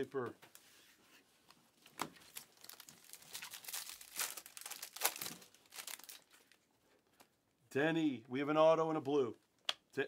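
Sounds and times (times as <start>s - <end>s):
foil wrapper tearing and crinkling: 2.1s - 6.6s.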